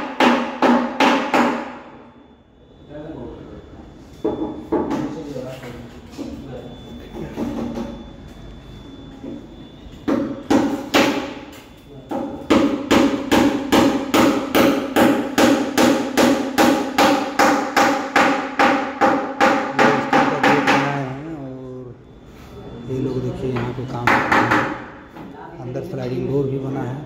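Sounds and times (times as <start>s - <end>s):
ringing hammer blows: 0.0s - 2.4s, 6.4s - 21.2s, 22.7s - 25.2s.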